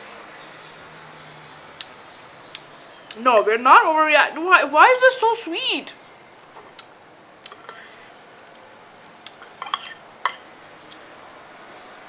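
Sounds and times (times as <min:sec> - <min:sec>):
fork clinking against plate: 0:07.5 - 0:07.9, 0:09.3 - 0:10.5.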